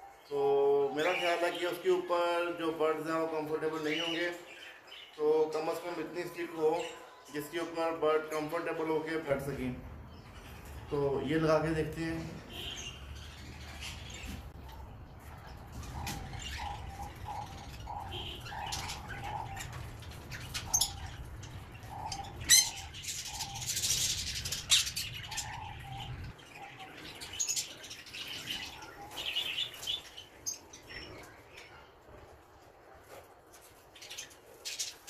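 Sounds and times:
pet birds chirping: 0:00.0 - 0:35.0.

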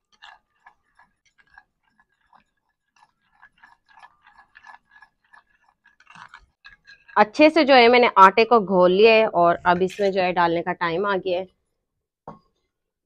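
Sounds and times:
spoon scraping and tapping bowl: 0:00.1 - 0:07.5, 0:09.7 - 0:10.4.

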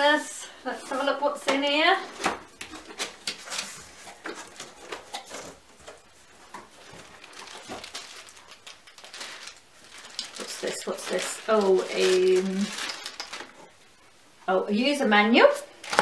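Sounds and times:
plastic packet rustling: 0:01.9 - 0:14.0, 0:15.8 - 0:16.0.

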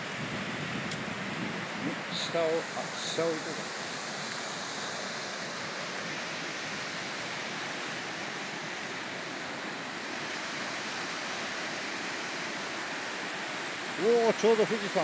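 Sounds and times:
waterfall and river rushing: 0:00.0 - 0:15.0.

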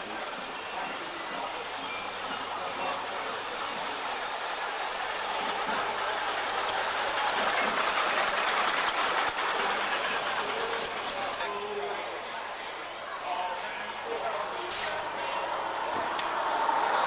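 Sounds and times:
diesel bus driving past: 0:14.7 - 0:17.0.

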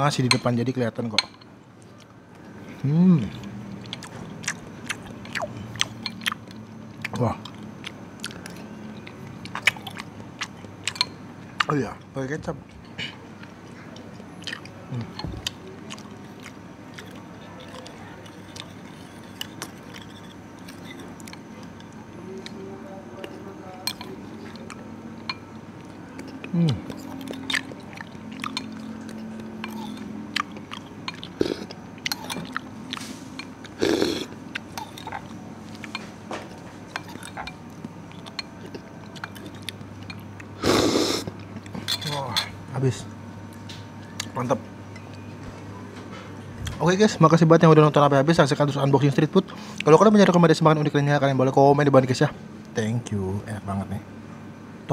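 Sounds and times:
cutlery scraping china bowl: 0:18.4 - 0:21.1, 0:41.8 - 0:42.5.

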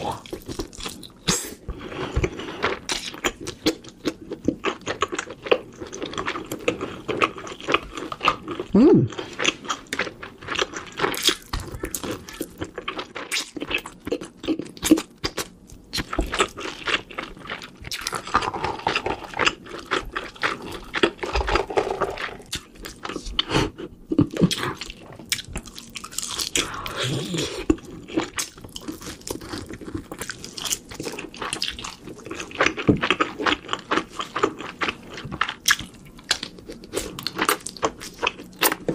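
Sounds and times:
chewing and crunching food: 0:00.0 - 0:38.9
person murmuring: 0:08.7 - 0:09.2, 0:26.9 - 0:27.6.

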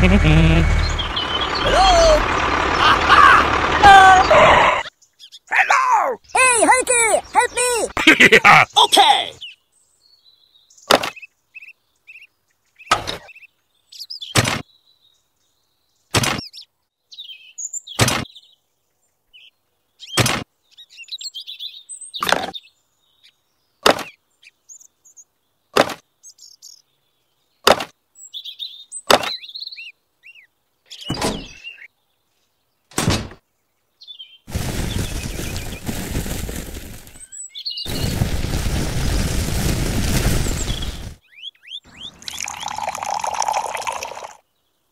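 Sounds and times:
faint bird chirps: 0:40.4 - 0:44.8.

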